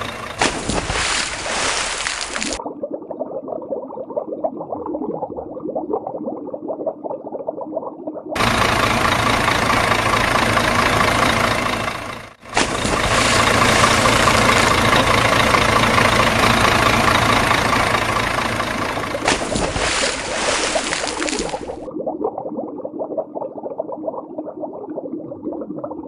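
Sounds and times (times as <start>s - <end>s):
truck engine running: 0.0s - 2.6s, 8.4s - 21.9s.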